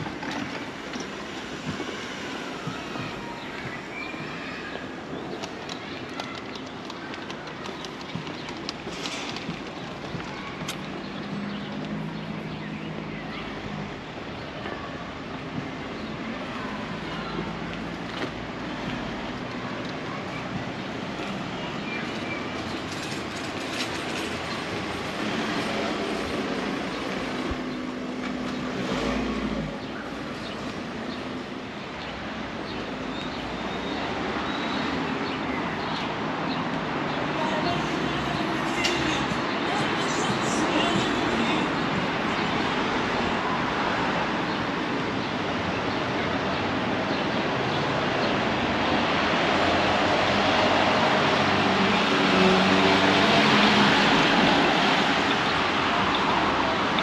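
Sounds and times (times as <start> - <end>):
road traffic rushing: 0.0 - 57.0
street noise: 0.0 - 57.0
train rumbling on tracks: 16.7 - 31.6.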